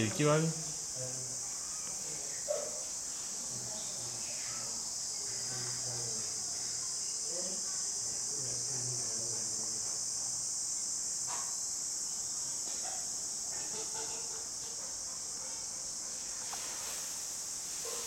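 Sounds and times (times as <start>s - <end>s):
high-pitched hiss: 0.0s - 18.0s.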